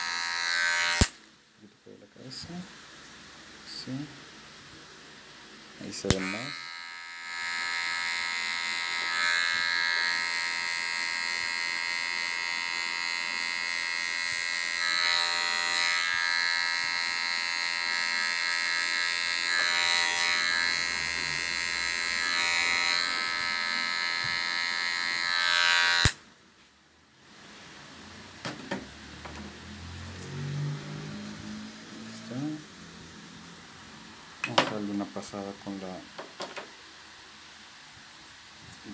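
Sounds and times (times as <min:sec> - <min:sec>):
electric hair clipper buzzing: 0:00.0 - 0:01.3, 0:06.0 - 0:26.2.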